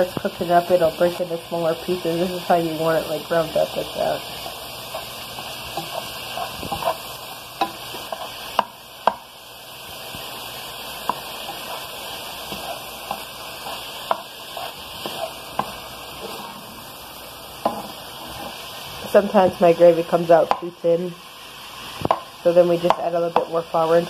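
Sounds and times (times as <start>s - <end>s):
sausage sizzling in a frying pan: 0.0s - 24.0s
spatula scraping and tapping pan: 2.0s - 9.3s, 11.0s - 16.7s, 17.6s - 18.6s, 20.4s - 20.8s, 22.0s - 24.0s.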